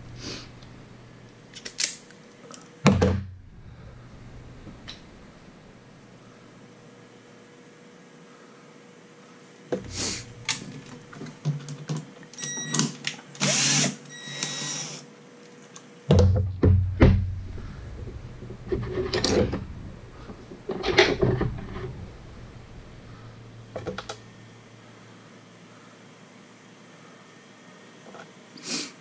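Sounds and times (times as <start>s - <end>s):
hands rustling wiring: 17.4s - 24.2s.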